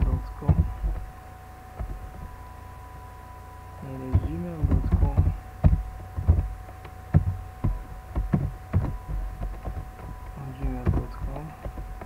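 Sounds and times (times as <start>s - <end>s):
person speaking: 0.0s - 1.0s, 3.8s - 5.5s, 10.3s - 11.8s
faint steady tones: 0.0s - 12.0s
low hum: 0.0s - 12.0s.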